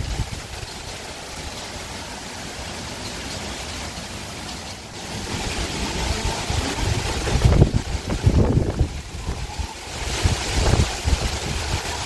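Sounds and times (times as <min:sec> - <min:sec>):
rain: 0:00.0 - 0:12.0
wind: 0:00.0 - 0:12.0.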